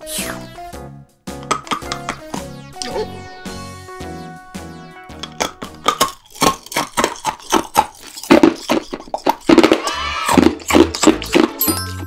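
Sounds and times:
rising and falling sound effect: 2.4s - 6.1s
hard candy crunching: 5.2s - 11.6s.

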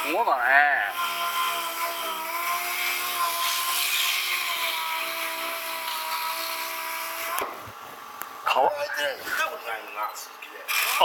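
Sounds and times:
power tool whining: 0.0s - 7.7s, 10.6s - 11.0s.

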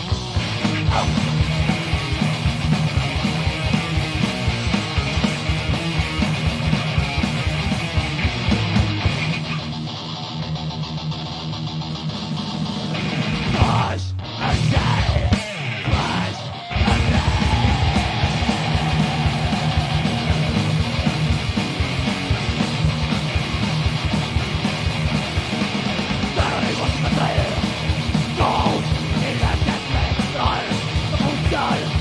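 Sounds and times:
fast drum beat: 0.0s - 9.2s, 14.8s - 32.0s
rock band playing: 0.0s - 32.0s
shouted vocals: 13.4s - 21.1s, 26.3s - 32.0s.

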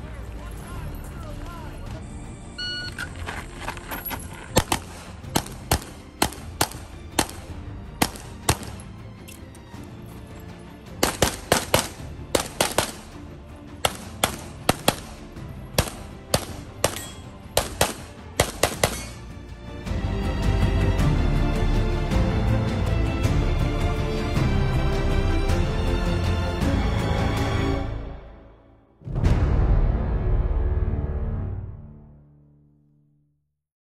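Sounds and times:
rapid pistol fire: 4.6s - 8.8s, 11.0s - 13.1s, 13.8s - 15.2s, 15.8s - 19.2s.

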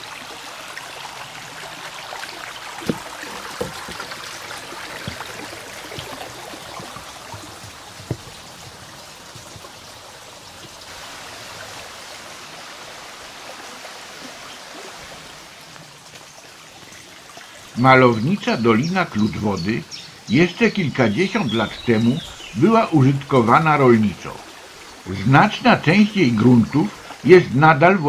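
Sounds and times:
brook babbling: 0.0s - 28.0s
footsteps on wooden boards: 2.7s - 10.0s.

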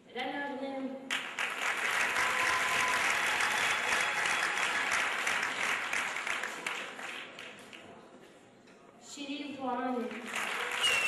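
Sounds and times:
audience applauding: 1.1s - 7.8s, 10.2s - 11.0s.

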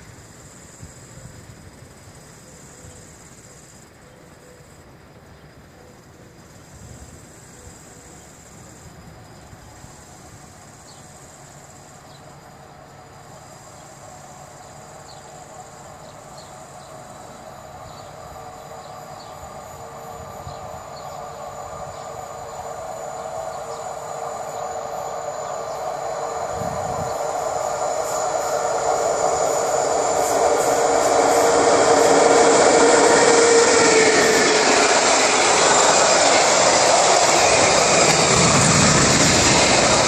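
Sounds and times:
electric locomotive whine: 0.0s - 40.0s
freight wagons rolling past: 26.8s - 40.0s.

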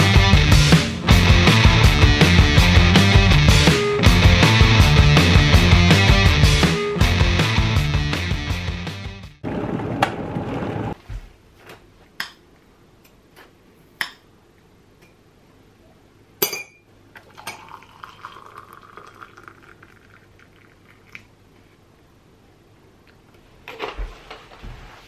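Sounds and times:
spoon clinking in a ceramic mug: 16.4s - 16.8s
hot water pouring into a mug: 17.2s - 21.3s.

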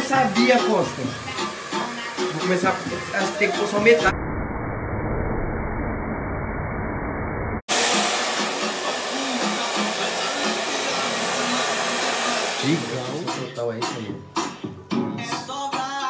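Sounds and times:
hair dryer blowing: 0.0s - 4.1s, 7.7s - 13.6s
music with a beat: 13.0s - 16.0s.

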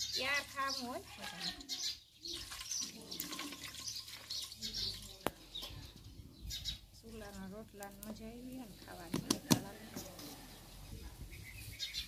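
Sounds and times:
water splashing in bowl: 2.2s - 5.6s.

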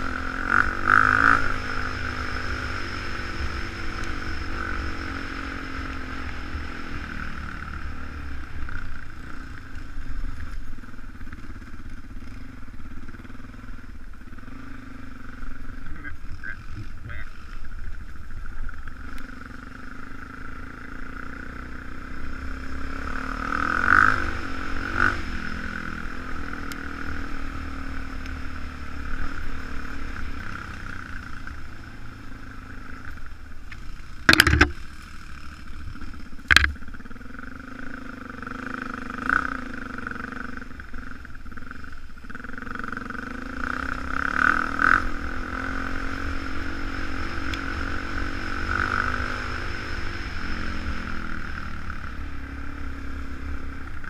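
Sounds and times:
dirt bike engine revving: 0.0s - 54.0s
sharp knocks: 34.3s - 34.8s, 36.5s - 36.8s.

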